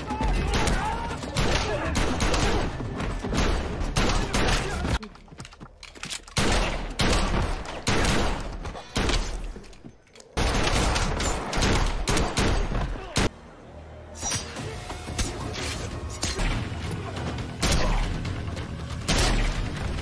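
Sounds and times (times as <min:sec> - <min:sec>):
echoing gunshots: 0:00.3 - 0:05.0, 0:06.4 - 0:09.4, 0:10.4 - 0:13.3.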